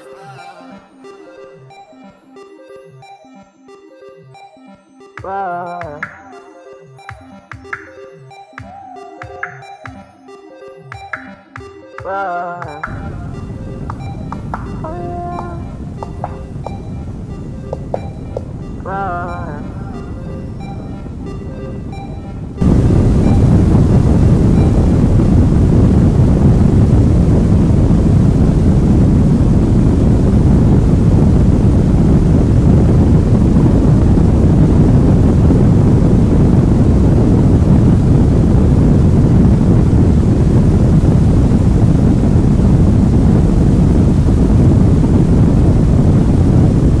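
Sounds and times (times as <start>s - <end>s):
wind buffeting microphone: 13.0s - 47.0s.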